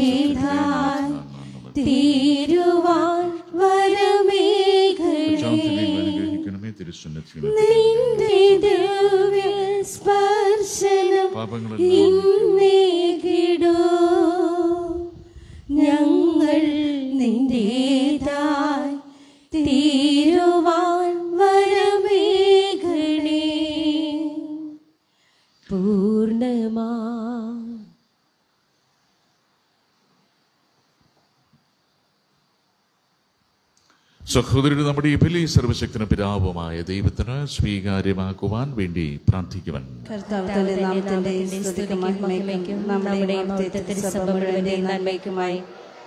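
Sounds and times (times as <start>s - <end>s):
woman singing a hymn: 0.0s - 1.2s, 1.8s - 6.4s, 7.5s - 24.8s, 25.7s - 27.9s, 40.2s - 45.4s.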